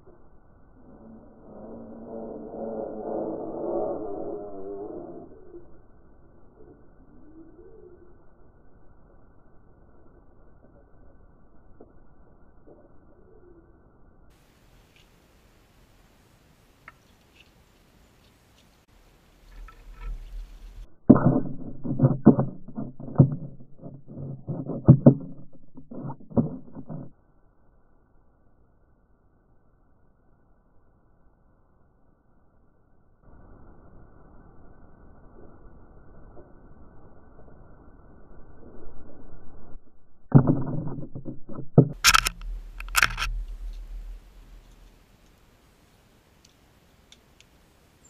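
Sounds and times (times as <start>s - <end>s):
rustling: 16.8s - 27.1s, 40.6s - 45.8s
birds fluttering at a feeder: 18.2s - 27.1s
sharp crackling bursts: 18.8s - 27.1s, 40.2s - 45.8s.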